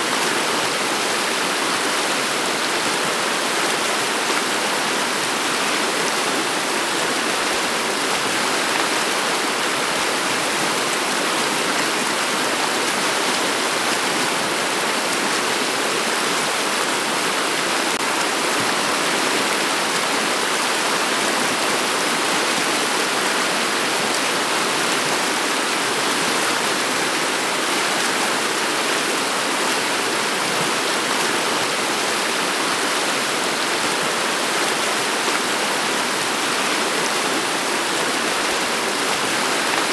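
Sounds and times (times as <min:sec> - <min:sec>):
river water over stones: 0:00.1 - 0:39.9.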